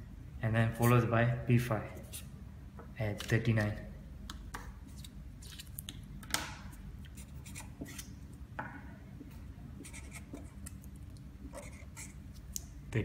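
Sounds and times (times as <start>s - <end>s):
marker pen scratching on paper: 7.1s - 8.1s, 9.8s - 10.6s, 11.5s - 12.2s.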